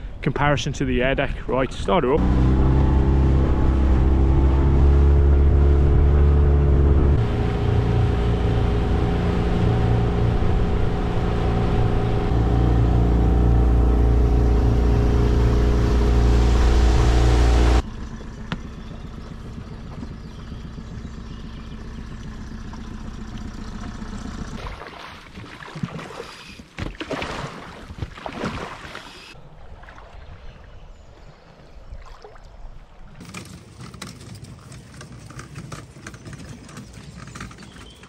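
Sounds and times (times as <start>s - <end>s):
wind and water noise: 0.0s - 38.0s
outboard motor running: 2.2s - 26.9s, 33.2s - 38.0s.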